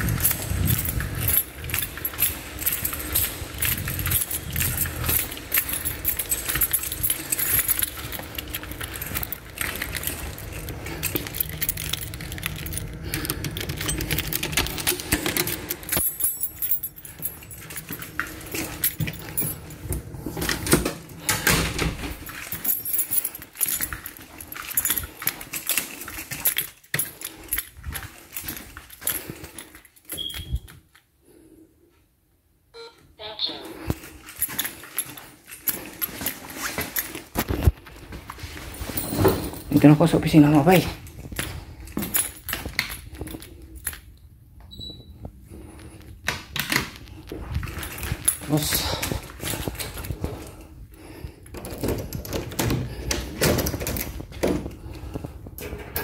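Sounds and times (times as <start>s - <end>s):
keys jangling: 0.0s - 31.4s, 33.7s - 56.0s.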